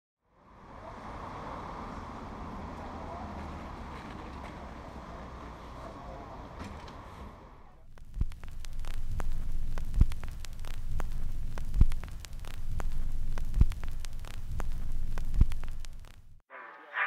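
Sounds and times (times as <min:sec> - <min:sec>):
faint street ambience: 0:00.2 - 0:13.5
vinyl record crackle: 0:06.8 - 0:17.0
low hum: 0:07.3 - 0:17.0
low thumps: 0:07.9 - 0:16.4.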